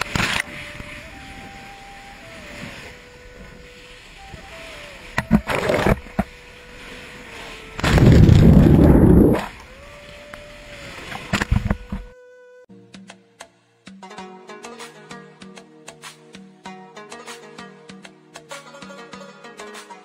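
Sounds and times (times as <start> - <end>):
rushing wind: 0.0 - 9.6
sea noise: 0.0 - 12.1
lava pouring into sea: 7.8 - 9.5.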